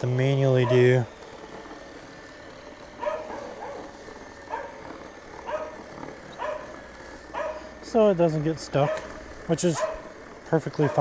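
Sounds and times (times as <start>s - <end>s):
dog barking: 3.0s - 3.9s, 4.5s - 4.8s, 5.4s - 5.8s, 6.4s - 7.7s, 8.8s - 9.1s, 9.7s - 10.1s, 10.8s - 11.0s.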